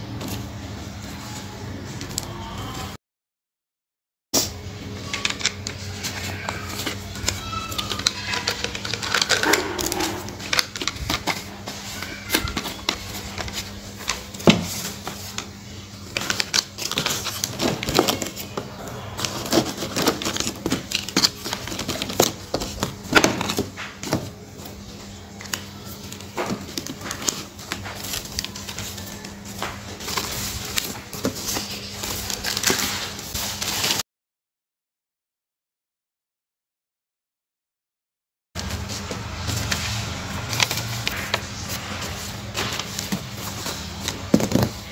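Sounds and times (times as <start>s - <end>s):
tissue paper and plastic crinkling: 5.1s - 34.0s, 38.6s - 44.9s.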